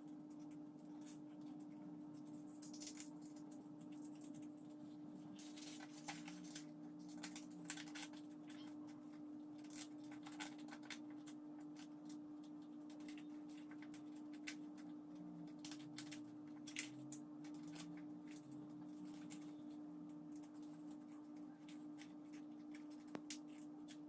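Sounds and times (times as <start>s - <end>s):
steady low hum: 0.0s - 24.0s
paper rustling and crinkling: 1.0s - 12.2s, 15.4s - 24.0s.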